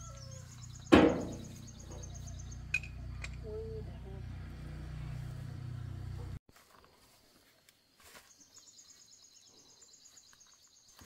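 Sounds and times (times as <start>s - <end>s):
loud metallic clang: 0.9s - 1.6s
engine idling: 0.9s - 6.4s.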